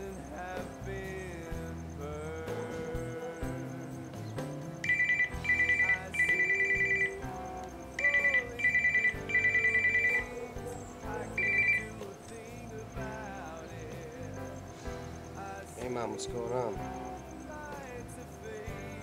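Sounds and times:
soft background music: 0.0s - 19.0s
electronic telephone ringing: 4.8s - 7.3s, 8.0s - 10.6s, 11.3s - 12.1s.

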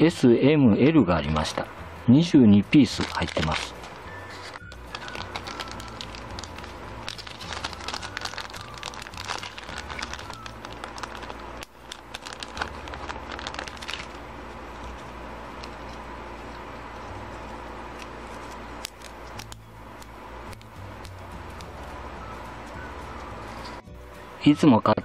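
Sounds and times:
plastic bag crinkling: 2.8s - 16.0s.

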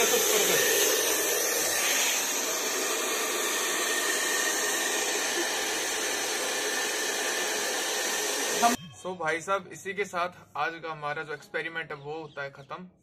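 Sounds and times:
hair dryer rushing hiss: 0.0s - 8.8s.

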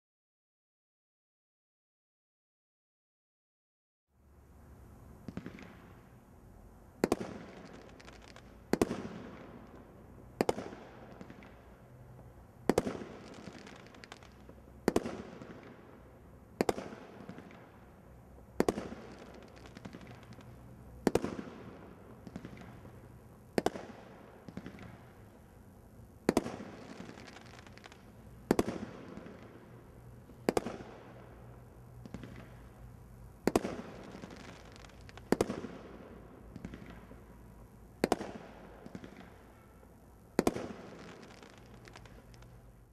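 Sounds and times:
quieter firework pops: 5.2s - 6.1s, 7.0s - 25.6s, 26.2s - 39.7s, 40.3s - 42.6s
firework bangs with echo: 7.0s - 9.8s, 10.4s - 11.6s, 12.6s - 15.8s, 16.6s - 17.7s, 18.6s - 25.4s, 26.2s - 31.4s, 33.4s - 37.2s, 38.0s - 39.7s, 40.3s - 42.4s.

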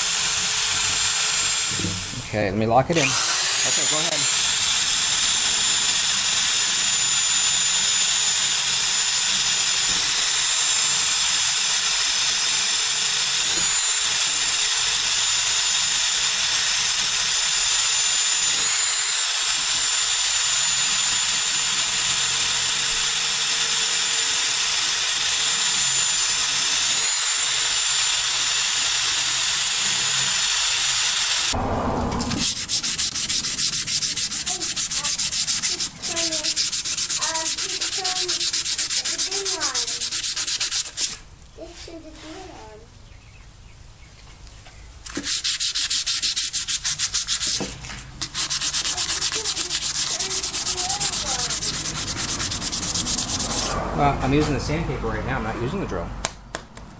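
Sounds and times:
drill motor whine: 0.0s - 2.2s, 2.9s - 32.6s
sandpaper rasping on metal: 3.0s - 4.4s, 32.4s - 42.5s, 45.1s - 53.9s
wire brush scouring metal: 3.0s - 4.4s, 32.2s - 42.6s, 45.1s - 53.9s.

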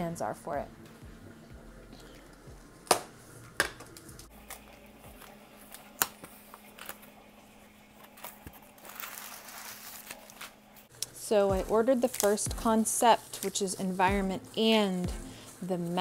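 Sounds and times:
cardboard rustling: 8.0s - 10.6s.

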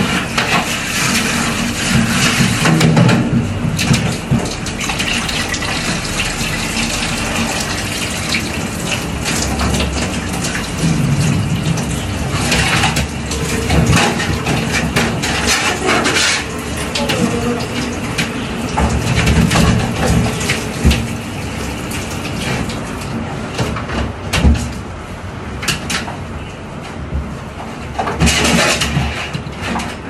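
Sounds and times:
water splashing: 0.0s - 23.2s
water running from shower hose: 0.0s - 23.6s.

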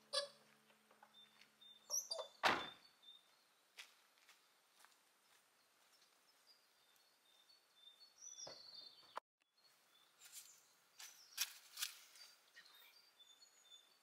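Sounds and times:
faint bird chirps: 5.6s - 14.0s.

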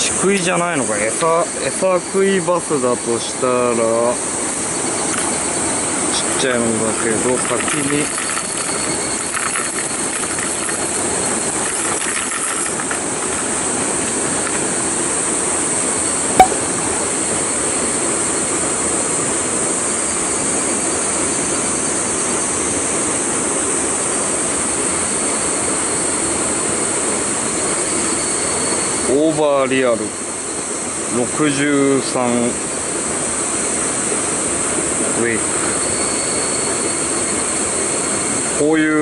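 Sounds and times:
water rushing: 5.0s - 15.8s
sharp click: 16.4s - 16.8s.

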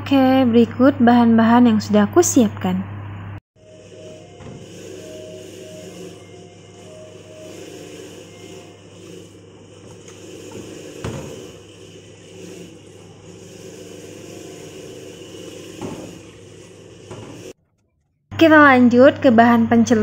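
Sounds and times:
steady low hum: 2.8s - 17.6s.

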